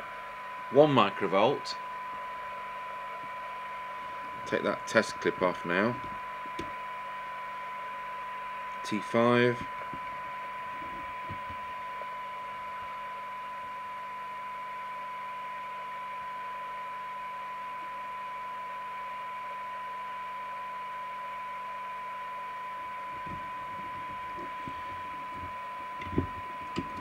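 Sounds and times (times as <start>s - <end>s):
radio hiss: 0.0s - 13.0s, 22.8s - 27.0s
radio test tone: 0.6s - 13.9s, 22.0s - 27.0s.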